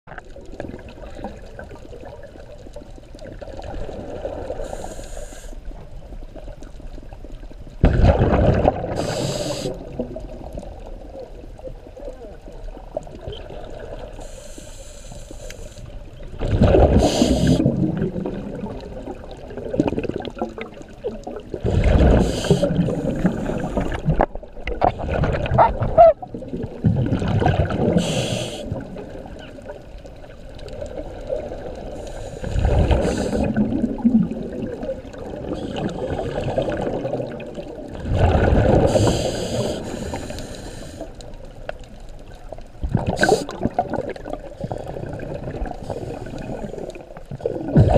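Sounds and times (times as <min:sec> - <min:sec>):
regulator hiss: 0:04.6 - 0:05.6, 0:09.0 - 0:09.8, 0:14.2 - 0:16.0, 0:17.0 - 0:17.6, 0:22.2 - 0:23.6, 0:28.0 - 0:28.8, 0:38.8 - 0:41.2
bubbling exhalations underwater: 0:07.8 - 0:10.8, 0:16.3 - 0:29.6, 0:30.7 - 0:39.9, 0:42.8 - 0:47.9.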